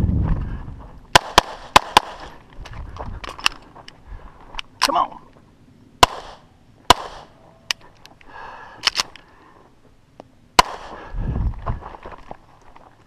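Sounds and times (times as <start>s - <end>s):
low rumble: 0.0s - 1.2s, 10.9s - 12.1s
pistol shots: 1.1s - 2.4s, 6.0s - 7.4s, 10.6s - 11.0s.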